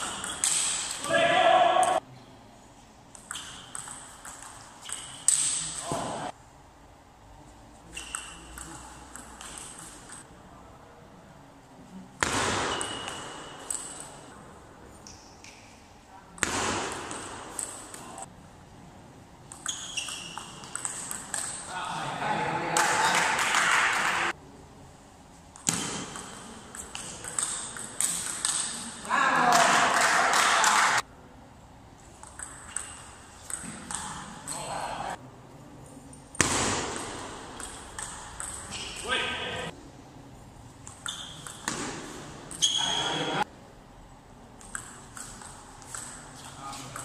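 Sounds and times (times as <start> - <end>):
table tennis ball hits: 12.2 - 14.1, 16.4 - 18.0, 19.5 - 21.7, 25.5 - 30.7, 32.2 - 34.7, 36.3 - 39.4, 40.8 - 42.7.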